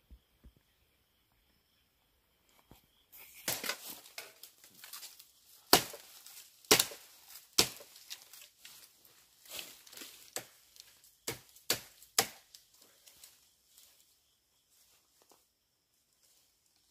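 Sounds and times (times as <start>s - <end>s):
rustling through bamboo leaves: 3.2s - 15.4s
machete striking bamboo: 3.4s - 4.5s, 5.7s - 8.2s, 11.3s - 12.6s.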